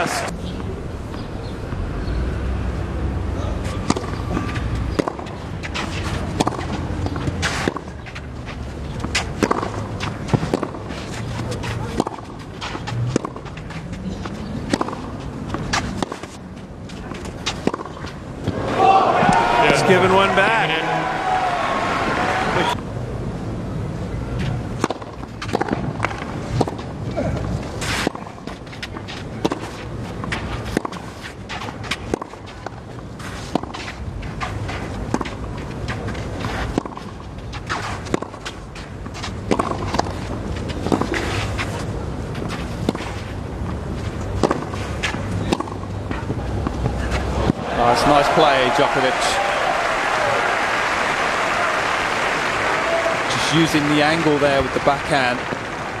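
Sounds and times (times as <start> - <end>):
low crowd background: 0.0 - 56.0
tennis balls struck by rackets: 3.6 - 20.7, 24.7 - 49.3, 52.6 - 56.0
shoes sliding on clay: 5.3 - 17.6, 37.6 - 45.4
racquet striking ball: 9.0 - 10.9, 11.8 - 13.5, 14.6 - 16.4, 17.4 - 22.8, 24.8 - 26.8, 39.4 - 40.2, 44.4 - 44.8, 45.4 - 48.9, 52.0 - 56.0.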